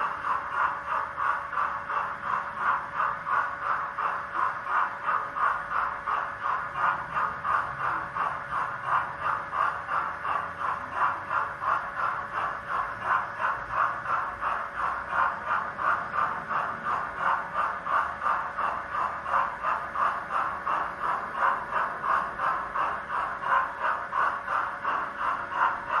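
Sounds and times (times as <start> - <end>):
model steam locomotive chuffing: 0.0 - 26.0.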